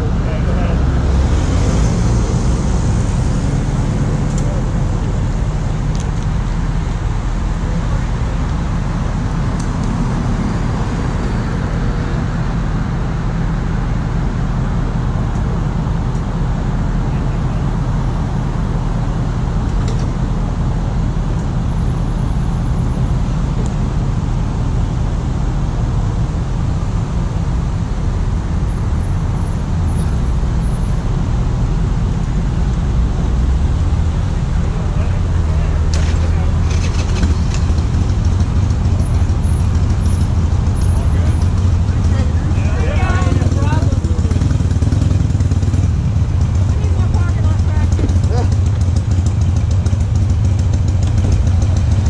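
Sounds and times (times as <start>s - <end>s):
cars driving past: 0.0s - 20.3s.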